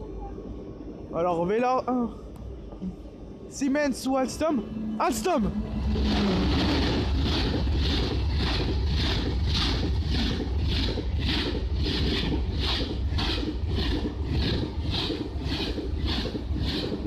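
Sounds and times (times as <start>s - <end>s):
high-speed train rumble: 0.0s - 17.0s
train wheel clatter: 5.8s - 17.0s.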